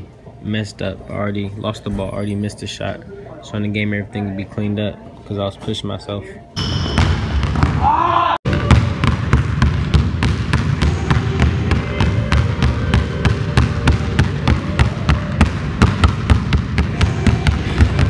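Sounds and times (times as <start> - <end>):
basketballs dribbled on gym floor: 6.7 - 18.0.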